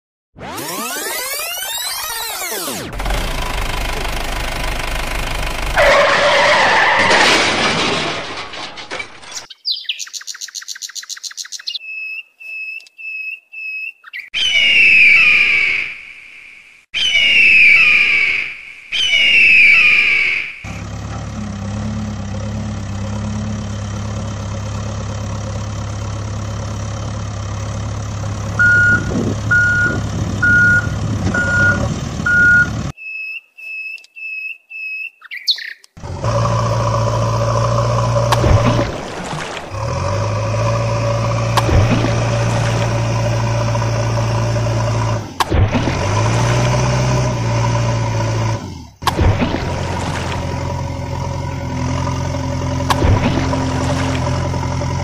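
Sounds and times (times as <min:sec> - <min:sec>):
backhoe engine running: 0:02.8 - 0:09.5, 0:20.6 - 0:33.0, 0:36.0 - 0:55.0
higher beeps: 0:28.6 - 0:34.4
reversing alarm beeping: 0:28.6 - 0:34.5.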